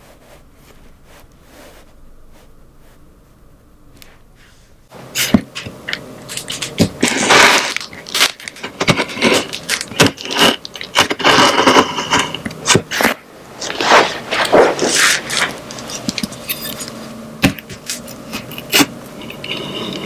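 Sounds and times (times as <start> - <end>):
cardboard and tape crackling: 5.1 - 19.5.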